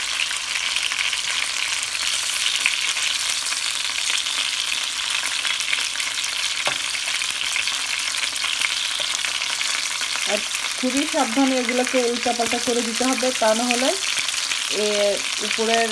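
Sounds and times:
chicken sizzling in oil: 0.0s - 15.9s
metal spoon turning food in pan: 6.6s - 15.9s.

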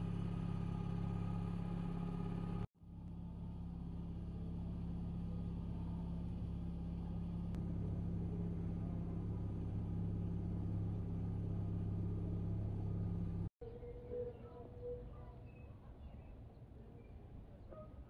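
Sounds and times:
boat motor running: 5.8s - 13.5s.

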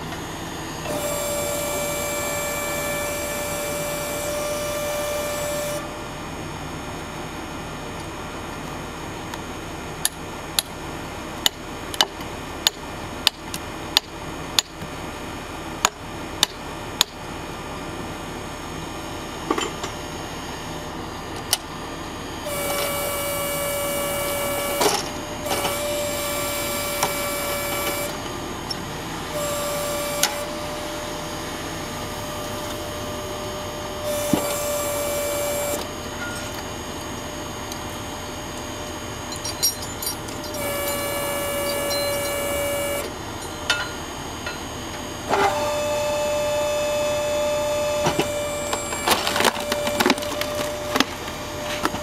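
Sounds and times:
machine running: 0.0s - 6.0s, 22.4s - 43.7s
hydraulic log splitter whine: 0.0s - 52.0s.

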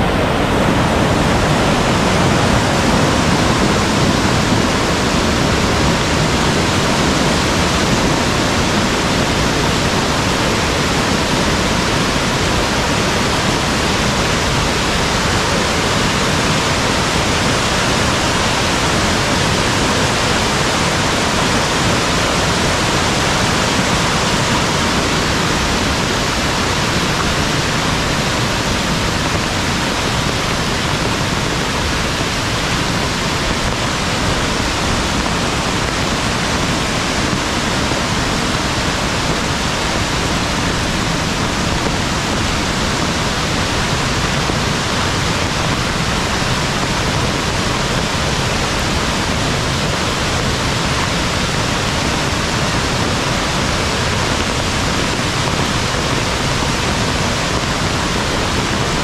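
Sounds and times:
heavy rain: 0.0s - 59.0s
stream rushing: 0.0s - 59.0s.

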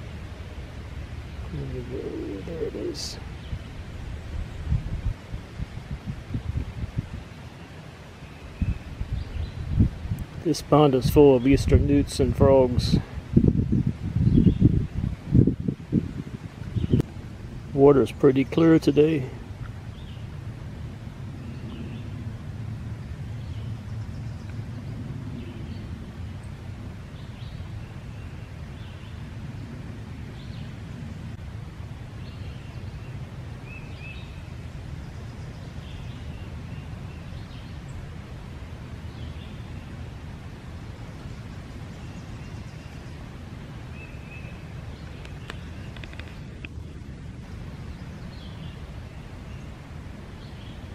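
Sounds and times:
steady low rumble: 0.0s - 50.9s.

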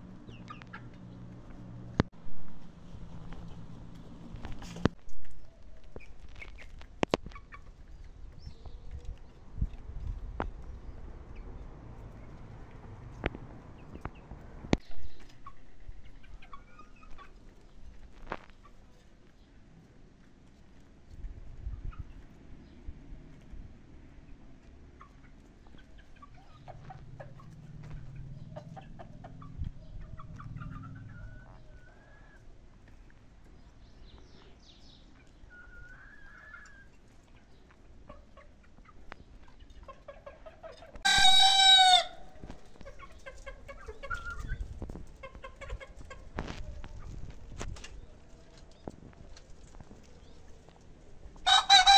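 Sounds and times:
chickens warbling calls: 0.0s - 1.4s, 15.0s - 18.9s, 24.1s - 51.9s
chickens clucking softly: 0.1s - 2.0s, 5.4s - 51.9s
rooster crowing: 41.1s - 42.3s.

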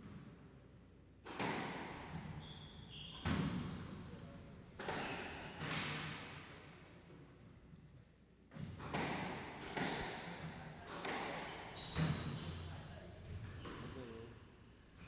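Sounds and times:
squash ball hits echoing: 1.2s - 2.3s, 4.8s - 6.4s, 8.6s - 11.7s
shoe squeaks on wooden floor: 2.3s - 5.7s, 11.4s - 12.7s.

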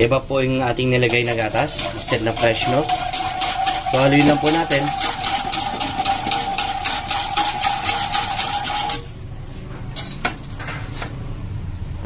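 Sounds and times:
whisk rattling in metal saucepan: 0.5s - 9.1s.

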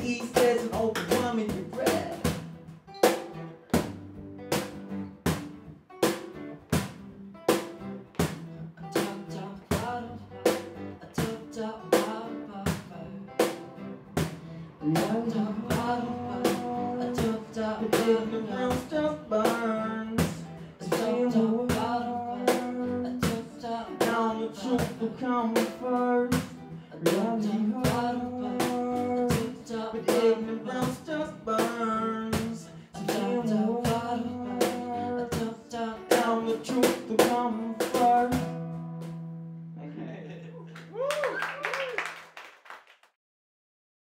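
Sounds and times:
man singing into a microphone: 0.0s - 2.3s, 8.8s - 10.2s, 11.0s - 13.4s, 14.8s - 38.6s
acoustic guitar strumming: 0.0s - 39.8s
cajon slaps: 0.2s - 8.4s, 9.0s - 11.4s, 12.0s - 14.4s, 26.3s - 31.0s, 36.1s - 39.2s.

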